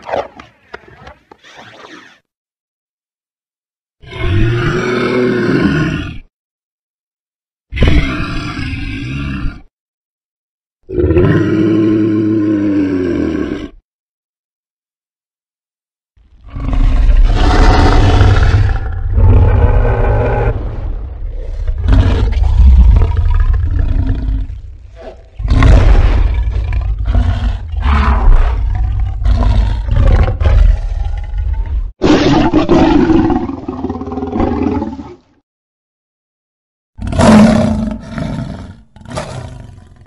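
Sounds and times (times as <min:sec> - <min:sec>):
creature roaring: 0:04.0 - 0:06.3, 0:07.8 - 0:09.7, 0:10.9 - 0:13.8, 0:16.4 - 0:35.2, 0:37.0 - 0:40.0.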